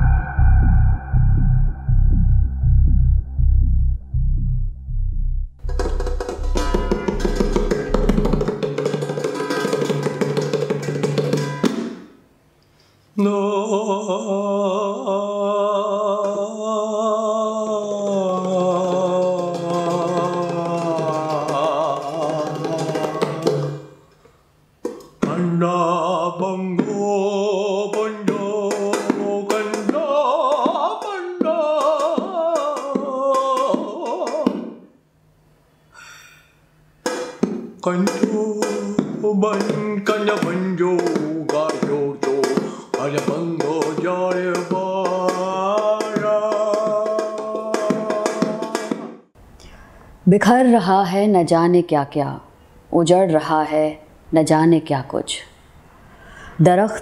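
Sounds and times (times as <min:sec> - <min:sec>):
low drone: 0:00.0 - 0:08.6
drum hits: 0:00.0 - 0:12.1, 0:37.0 - 0:49.2
wavering sustained melody: 0:05.6 - 0:08.6.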